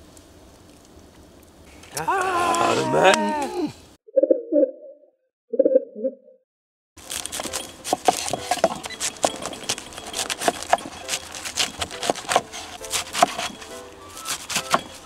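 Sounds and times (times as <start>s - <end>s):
knife cutting cabbage on board: 7.1s - 15.0s.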